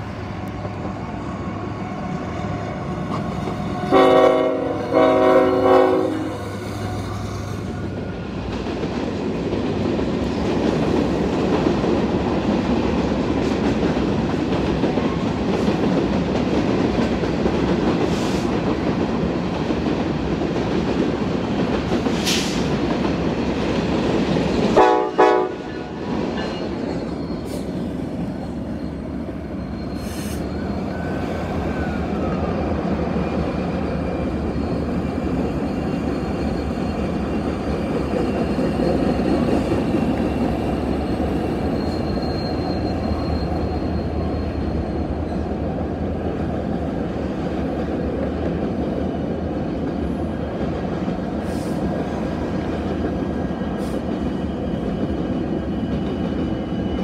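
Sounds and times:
train wheels rolling: 0.0 - 57.0
train horn blast: 3.9 - 6.7, 24.8 - 25.9.

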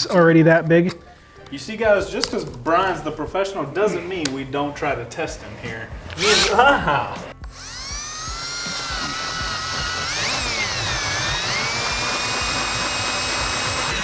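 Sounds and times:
power drill boring into metal: 6.2 - 6.6, 7.4 - 14.0.

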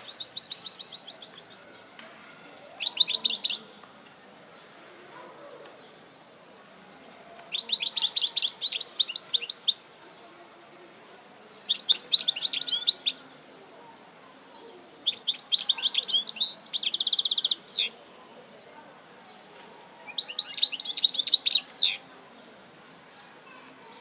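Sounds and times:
bird twittering and trilling: 0.0 - 1.7, 2.8 - 3.8, 7.5 - 9.8, 11.7 - 13.5, 15.0 - 18.0, 20.1 - 22.0.

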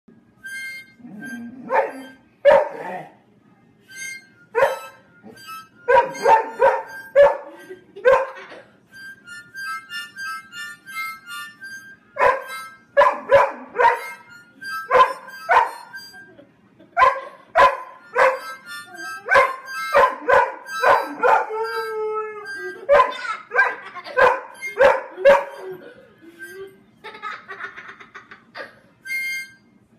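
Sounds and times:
harmonica chords: 0.1 - 29.9
puppy howling: 19.3 - 23.8, 24.6 - 26.0.

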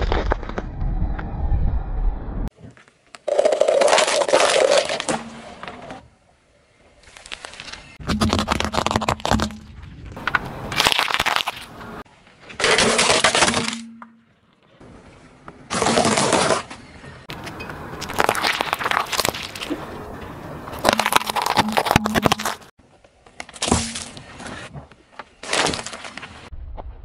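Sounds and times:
car tyre crushing objects: 0.0 - 0.8, 7.0 - 14.7, 15.6 - 22.7.

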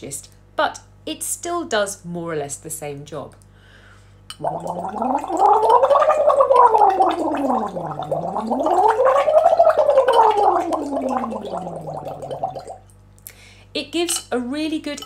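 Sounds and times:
water bubbling: 4.3 - 12.9
woman voicing through a straw: 4.8 - 12.6.

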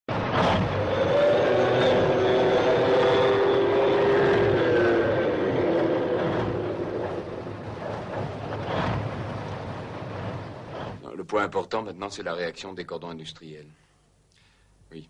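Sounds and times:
tank engine whine: 0.1 - 11.0
tank tracks clattering: 6.2 - 11.0.

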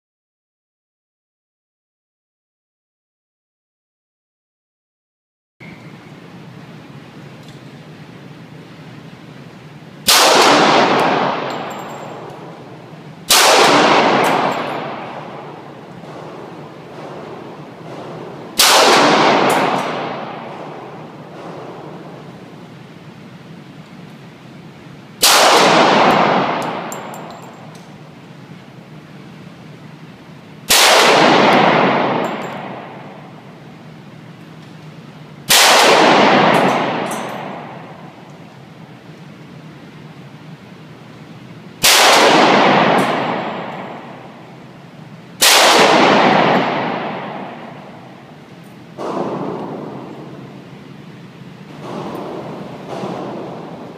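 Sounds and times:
pistol shots echoing: 10.0 - 23.1, 25.2 - 28.8, 30.3 - 38.9, 41.8 - 53.9.

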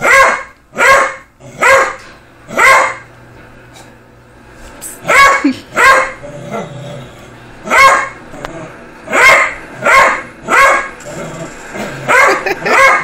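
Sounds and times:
dog barking: 0.0 - 3.1, 5.0 - 6.2, 7.6 - 8.2, 9.1 - 10.9, 12.0 - 13.0
dog growling: 6.2 - 7.4, 8.3 - 8.8, 11.0 - 12.6.

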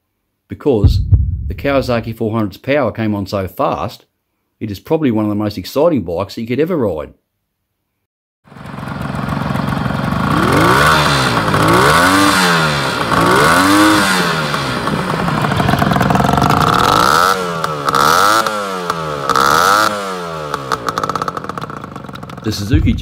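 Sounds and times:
motorcycle engine revving: 8.6 - 23.0.

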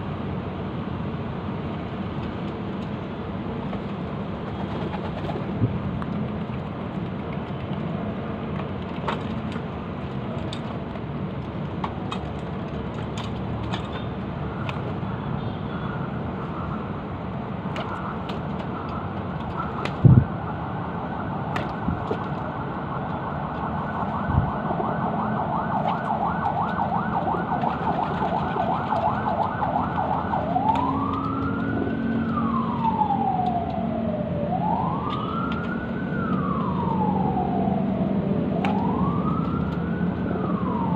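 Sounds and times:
emergency siren yelp and wail: 17.9 - 40.9.

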